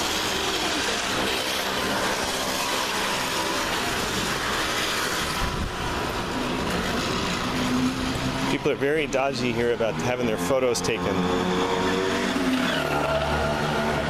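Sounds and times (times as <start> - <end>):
motor traffic rushing: 0.0 - 14.0.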